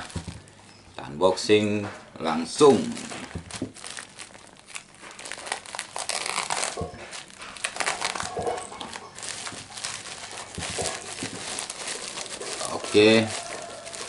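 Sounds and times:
plastic bag crinkling: 0.0 - 0.8, 2.4 - 14.0.

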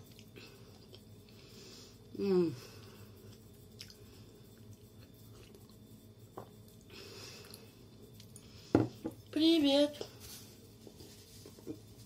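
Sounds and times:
low steady hum: 0.0 - 12.0
person sipping and chewing: 2.9 - 8.6.

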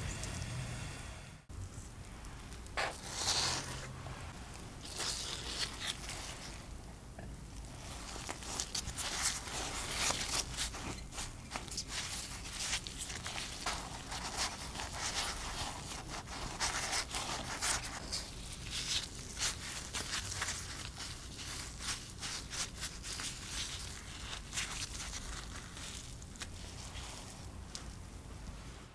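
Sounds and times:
flatbread crackling and tearing: 4.8 - 6.6, 7.7 - 28.0.

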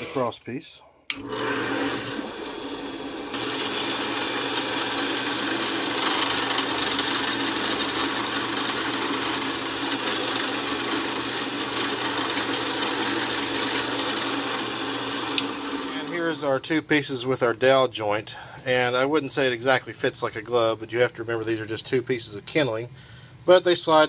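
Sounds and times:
drill press boring into wood: 1.1 - 16.4.

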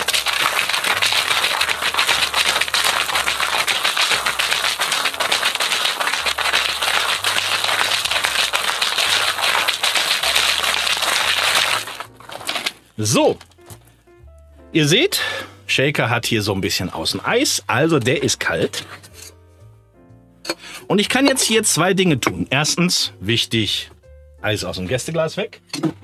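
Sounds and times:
ice rattling in cocktail shaker: 0.0 - 13.5.

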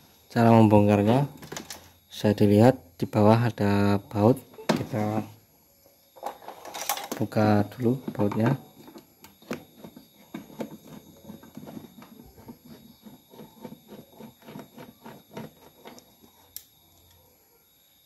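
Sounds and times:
screwdriver clicking and scraping: 8.1 - 16.7.

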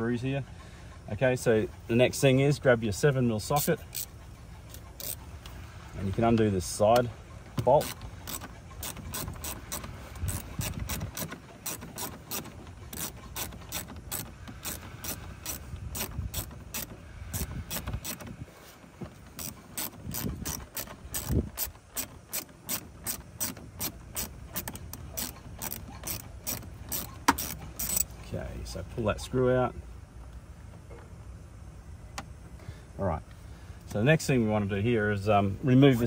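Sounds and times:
ratchet clicking: 3.5 - 5.3, 7.6 - 18.4, 19.3 - 28.2.

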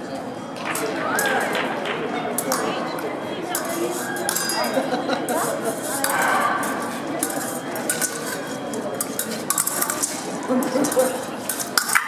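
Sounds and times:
murmur of sports hall: 0.0 - 12.0
fencing blades clicking: 2.4 - 2.8, 3.5 - 4.8, 5.4 - 12.0.

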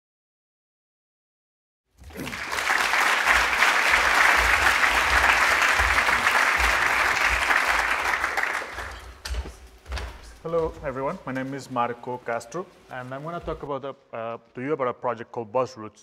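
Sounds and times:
audience applauding: 2.0 - 9.2.

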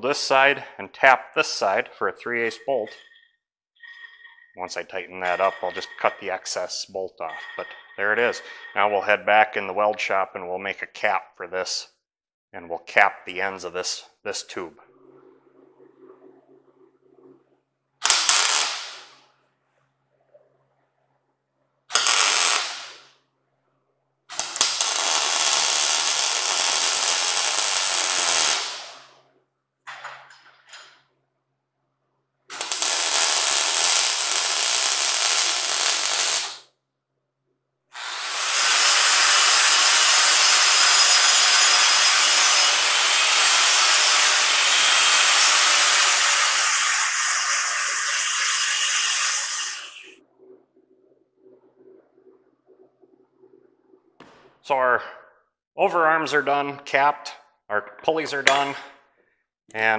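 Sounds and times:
angle grinder grinding metal: 5.2 - 6.3, 38.0 - 50.2
welder arc crackling: 18.0 - 19.2, 21.9 - 23.1, 24.3 - 29.1, 32.5 - 36.7.

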